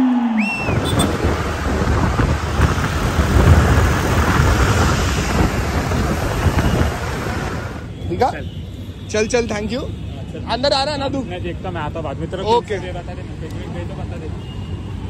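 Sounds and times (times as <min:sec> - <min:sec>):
road noise: 0:00.0 - 0:15.0
wind buffeting microphone: 0:00.6 - 0:07.8.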